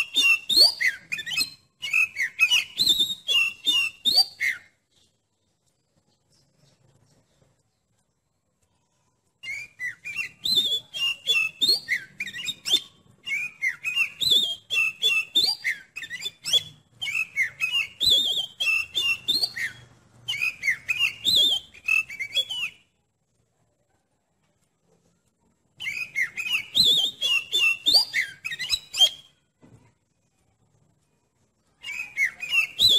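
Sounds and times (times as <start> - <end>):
bird singing whistled song: 0.0 - 5.1, 9.4 - 23.0, 25.8 - 29.4, 31.7 - 32.9.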